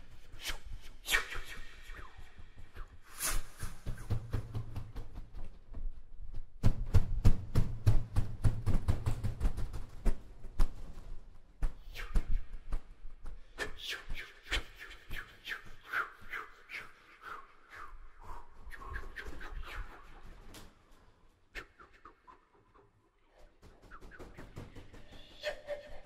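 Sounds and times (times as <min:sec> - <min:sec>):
percussive strikes with low thump: 0:06.6 - 0:10.0
bird-like whistle calls: 0:23.8 - 0:26.0.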